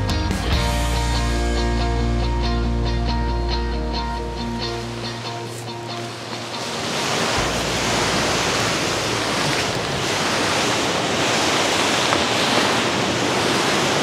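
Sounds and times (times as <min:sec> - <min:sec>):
wind rumble on microphone: 0:03.5 - 0:14.0
river rushing over rocks: 0:04.2 - 0:14.0.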